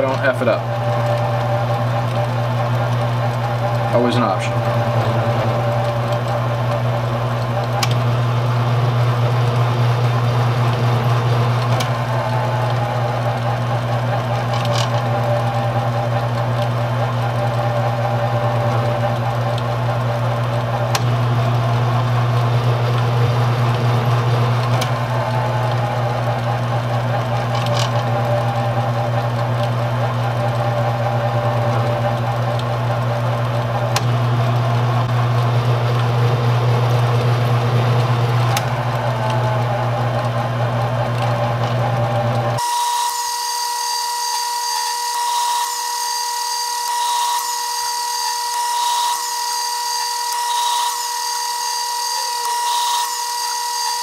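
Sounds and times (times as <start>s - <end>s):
whine sliding in pitch: 0.0s - 9.2s
lathe motor humming: 0.0s - 54.0s.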